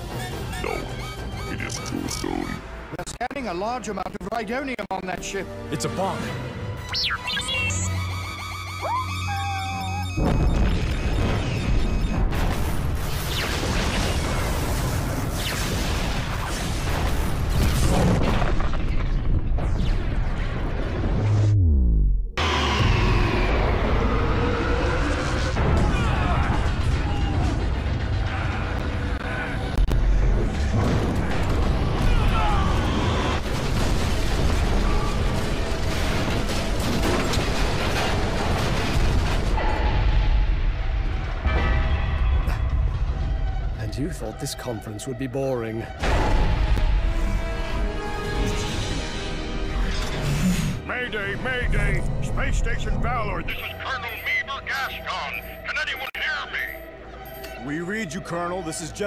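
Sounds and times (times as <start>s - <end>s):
rumbling explosion: 10.2s - 21.6s, 22.4s - 43.8s
crackling debris impacts: 30.3s - 39.8s.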